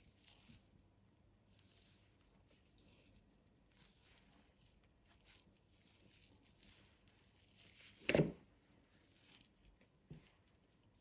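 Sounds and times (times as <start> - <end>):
mushroom skin tearing and rustling: 1.5 - 9.8.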